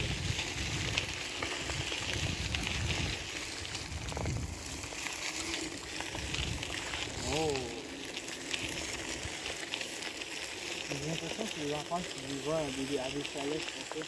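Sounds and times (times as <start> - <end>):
wind rumble on microphone: 0.0 - 5.0, 6.0 - 7.7
bike clicks and rattles: 0.0 - 14.0
tyres crunching on gravel: 0.0 - 14.0.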